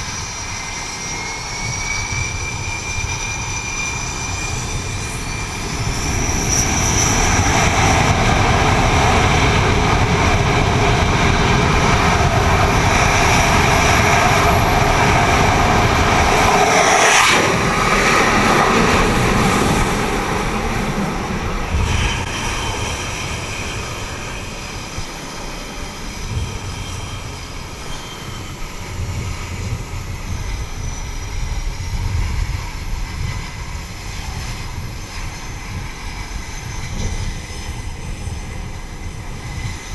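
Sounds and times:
jet engines at high power: 0.0s - 39.9s
steady jet rumble: 0.0s - 39.9s
jet catapult launch rush: 13.9s - 23.0s.

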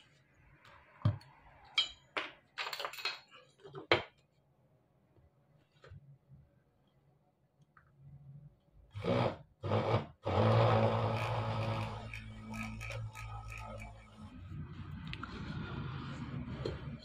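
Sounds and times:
mini drill motor humming: 9.0s - 14.0s
drill bit grinding metal: 9.0s - 14.3s.

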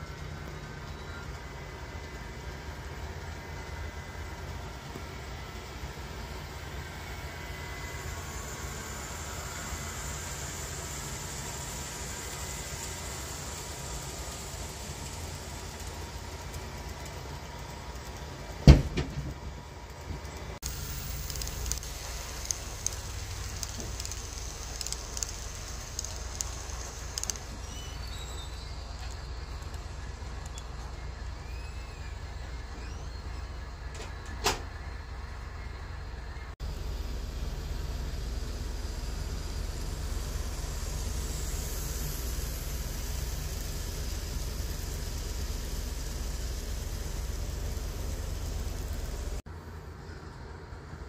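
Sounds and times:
model train rumbling: 0.0s - 49.4s
light irregular clicking: 21.1s - 31.3s.

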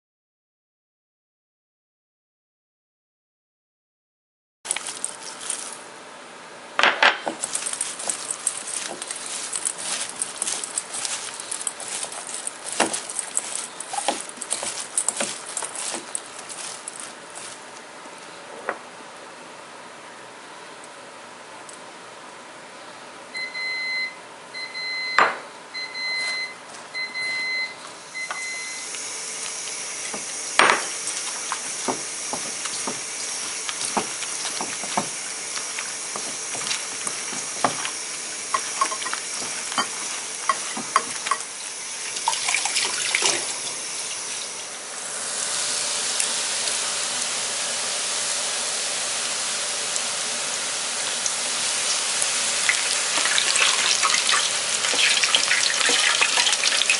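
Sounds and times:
hands mixing in metal bowl: 4.7s - 5.9s, 7.2s - 17.7s, 29.3s - 44.6s, 51.8s - 56.9s
fritters deep-frying in oil: 28.4s - 44.8s, 45.4s - 56.9s.

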